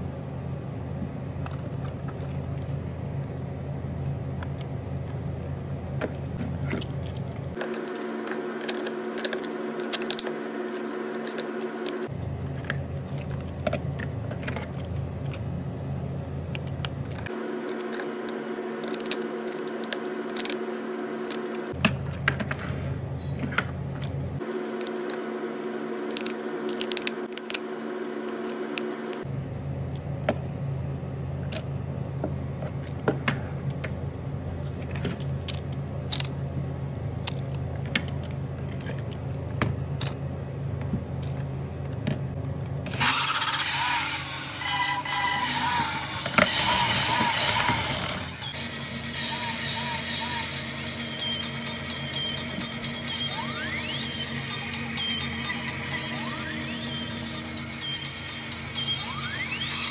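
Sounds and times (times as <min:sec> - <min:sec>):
steady hum: 0:00.0 - 0:59.9.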